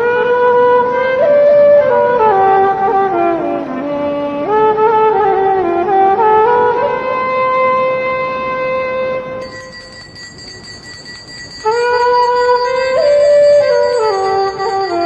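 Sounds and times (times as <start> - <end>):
wind instrument slow melody: 0.0 - 10.0, 11.4 - 15.0.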